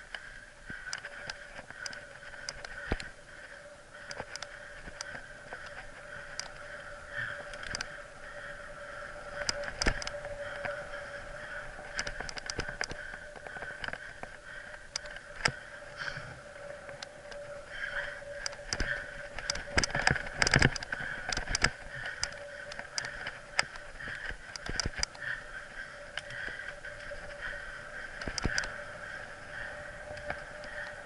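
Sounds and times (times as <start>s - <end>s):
bike tyre and trail noise: 0.0s - 31.0s
faint steady whine: 0.0s - 31.0s
bike and camera mount rattling: 4.0s - 15.6s, 16.8s - 28.8s
sharp clicks and knocks: 9.4s - 10.8s, 18.4s - 25.2s, 28.2s - 28.7s.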